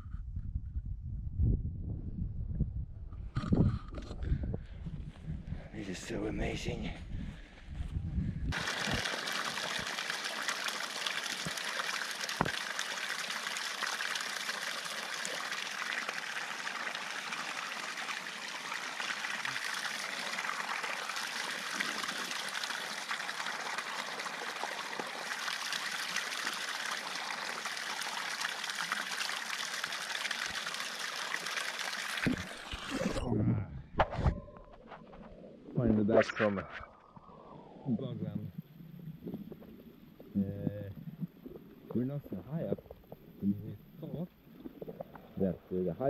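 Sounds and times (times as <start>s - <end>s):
small waterfall splashing: 8.5s - 33.1s.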